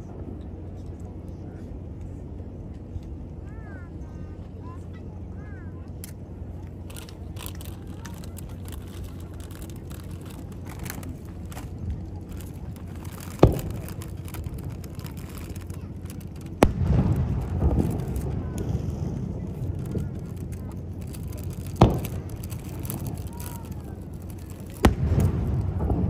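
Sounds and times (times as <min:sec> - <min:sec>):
rumbling noise: 0:00.0 - 0:26.0
fireworks bangs: 0:06.8 - 0:26.0.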